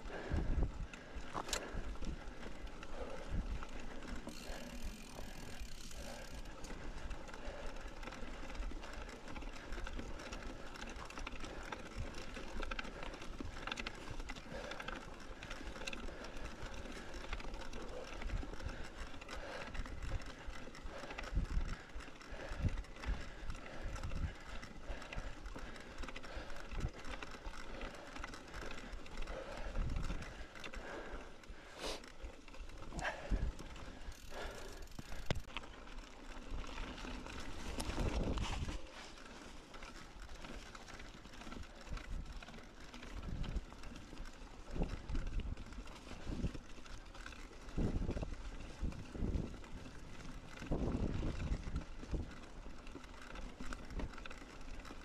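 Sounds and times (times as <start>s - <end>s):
bike chain and frame rattling: 0.0s - 55.0s
bike tyre noise on rough ground: 0.0s - 55.0s.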